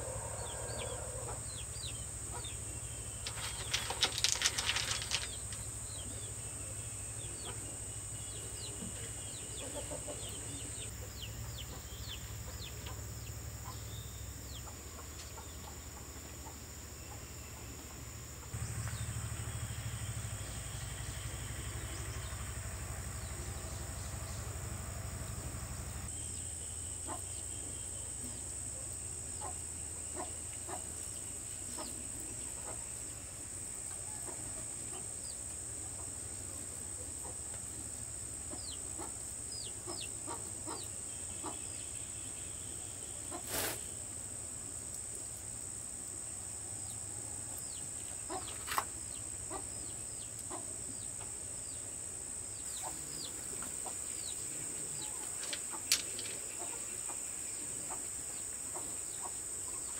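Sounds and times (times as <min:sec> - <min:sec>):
chickens clucking: 0:00.0 - 0:06.2, 0:08.7 - 0:13.9, 0:38.4 - 0:41.8, 0:43.3 - 0:43.8, 0:48.2 - 0:48.9, 0:52.7 - 0:59.9
high insect whine: 0:00.0 - 0:59.9
low hum: 0:17.4 - 0:26.4.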